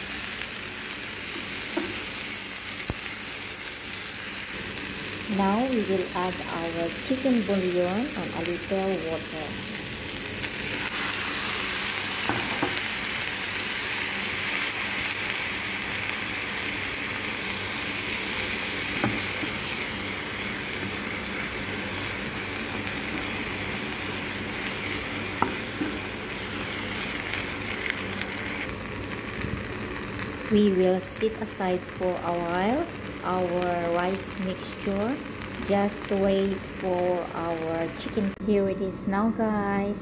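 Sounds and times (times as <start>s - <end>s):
liquid sizzling in a pan: 0.0s - 37.3s.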